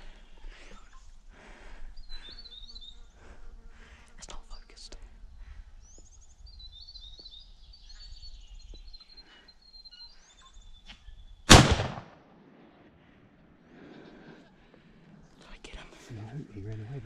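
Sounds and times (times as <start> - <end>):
small birds chirping: 0.0 - 11.5, 13.6 - 17.0
rifle shot with echo: 11.5 - 13.0.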